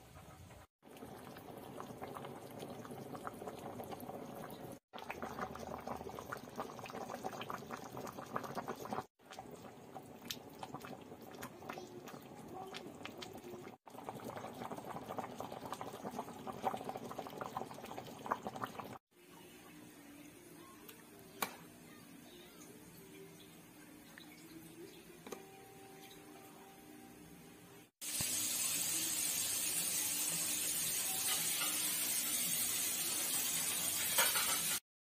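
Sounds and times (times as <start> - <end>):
stew bubbling in a pan: 0.8 - 19.1.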